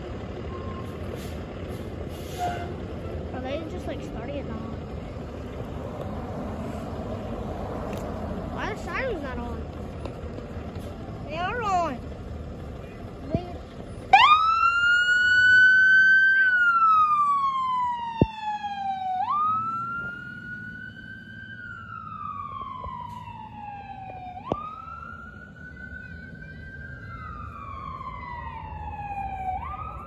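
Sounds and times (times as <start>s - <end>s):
ambulance siren wailing: 14.0s - 30.0s.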